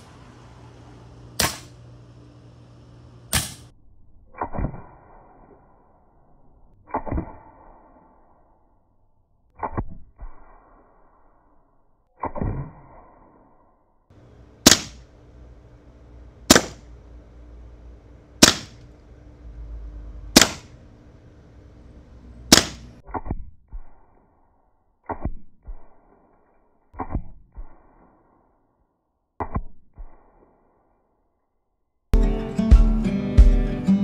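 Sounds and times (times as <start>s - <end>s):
air pistol shots: 1.4s - 1.8s, 3.3s - 3.7s, 14.6s - 15.1s, 16.4s - 16.9s, 18.4s - 18.9s, 20.3s - 20.8s, 22.5s - 23.3s
pellets thudding into target: 3.3s - 3.7s, 14.6s - 15.1s, 16.5s - 16.9s, 20.3s - 20.8s, 22.5s - 23.0s.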